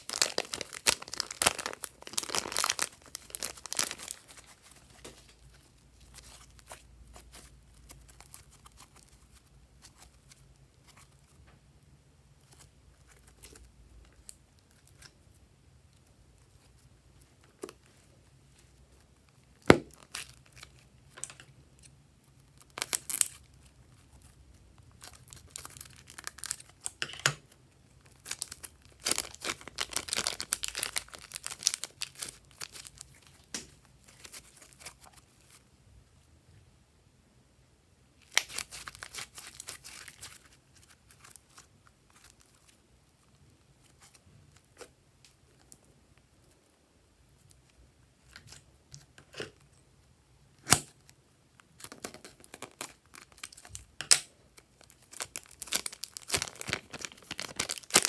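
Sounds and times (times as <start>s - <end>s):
plastic bag crinkling: 0.0s - 10.4s, 28.0s - 35.6s, 38.2s - 42.8s, 54.6s - 58.0s
slime crackling: 0.0s - 11.4s, 12.4s - 27.1s, 27.9s - 35.6s, 38.2s - 45.8s, 50.6s - 58.0s.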